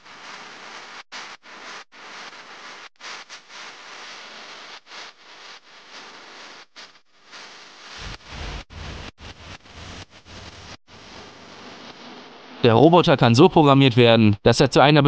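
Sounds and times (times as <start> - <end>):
static-like hiss: 0.0 - 15.0.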